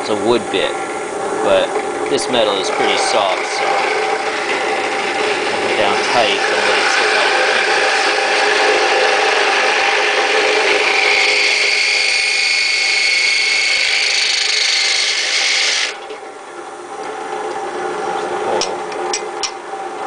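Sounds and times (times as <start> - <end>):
drill press motor running: 0.8 - 16.0
drill bit grinding metal: 2.1 - 16.0.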